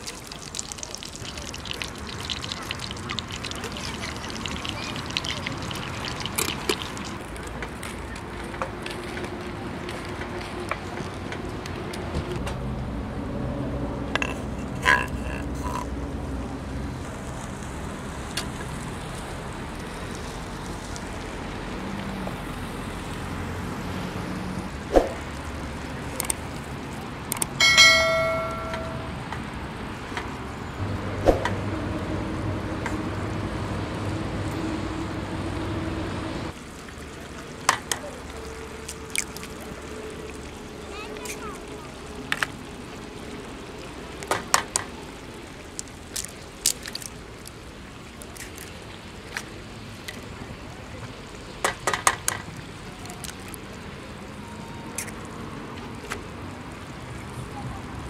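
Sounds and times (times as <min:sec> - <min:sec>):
ringing clink: 0:27.6 - 0:29.2.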